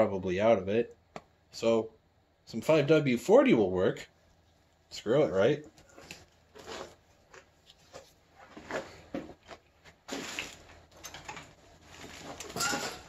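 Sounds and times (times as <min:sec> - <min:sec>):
scraping rustle: 0:05.8 - 0:13.0.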